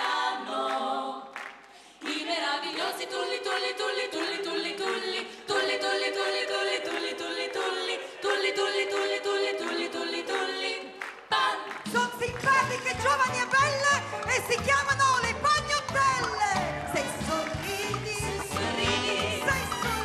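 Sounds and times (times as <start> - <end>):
women singing a cappella: 0.0 - 20.0
instrumental music with bass: 12.4 - 20.0.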